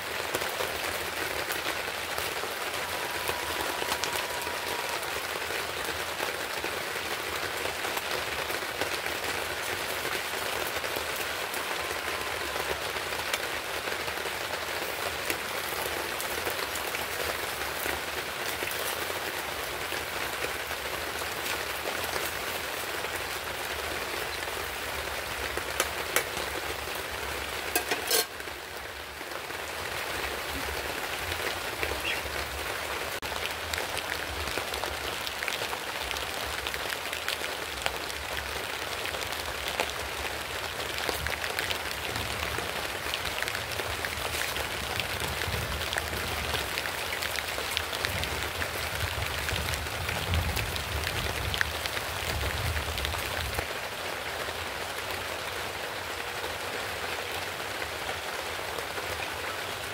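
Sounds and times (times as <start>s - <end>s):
fish sizzling in hot oil: 27.2s - 28.6s.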